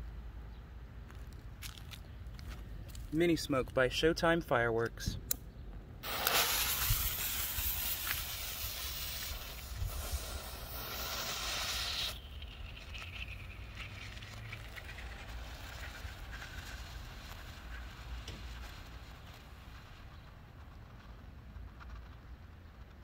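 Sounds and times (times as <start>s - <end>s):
smoke firework hissing: 6.0s - 23.0s.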